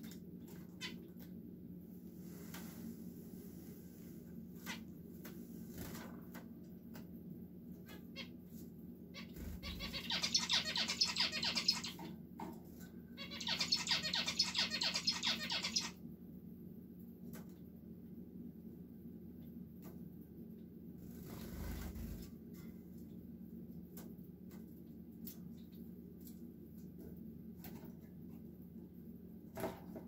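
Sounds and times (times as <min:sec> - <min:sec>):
finches chattering song: 0:09.6 - 0:12.0, 0:13.2 - 0:15.9.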